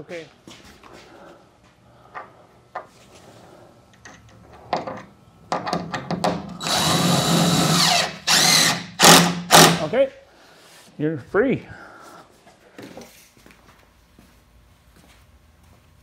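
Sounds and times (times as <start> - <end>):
cordless drill driving a screw: 6.6 - 9.8.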